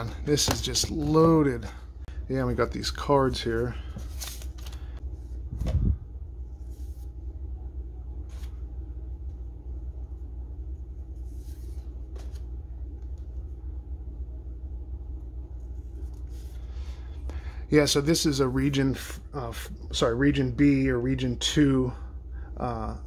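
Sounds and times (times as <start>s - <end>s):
steady low hum: 0.0s - 23.0s
paper cards rustling: 3.3s - 5.0s, 8.3s - 8.6s, 11.2s - 13.2s.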